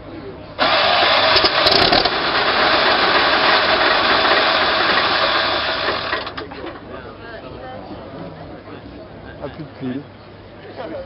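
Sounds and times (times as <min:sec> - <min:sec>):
tank engine running rough: 0:00.0 - 0:06.9.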